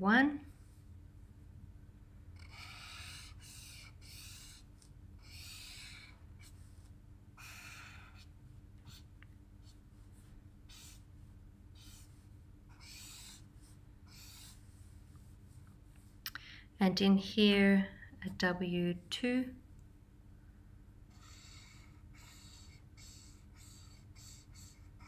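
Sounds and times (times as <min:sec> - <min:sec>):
marker scratching on paper: 0:02.4 - 0:11.1, 0:11.8 - 0:15.3, 0:21.2 - 0:25.0.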